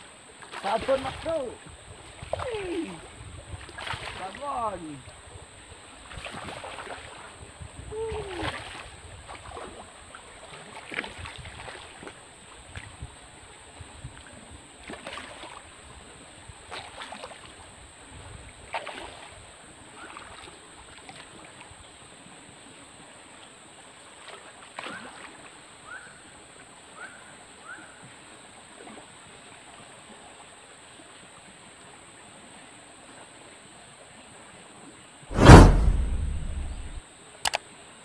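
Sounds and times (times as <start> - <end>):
flowing stream: 0.0 - 25.8.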